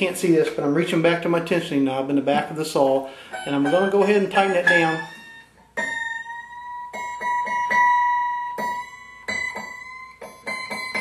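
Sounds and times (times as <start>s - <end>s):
plucked saw blade ringing: 3.3s - 11.0s.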